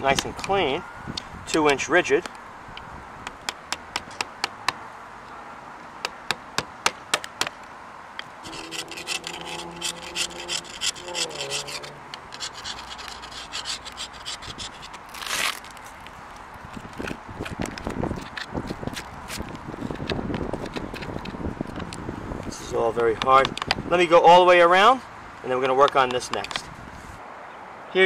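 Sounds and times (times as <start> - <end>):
chisel scraping tar: 8.4 - 16.1.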